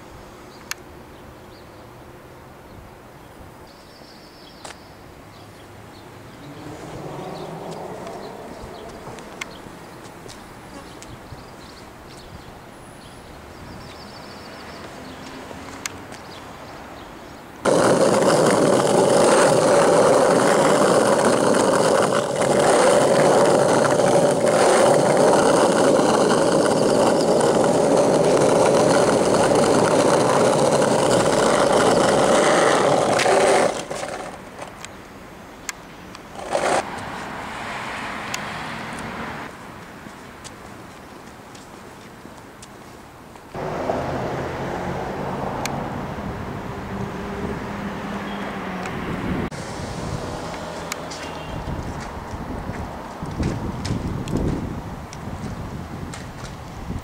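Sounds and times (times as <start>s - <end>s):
loud motor running: 17.7s - 34.4s.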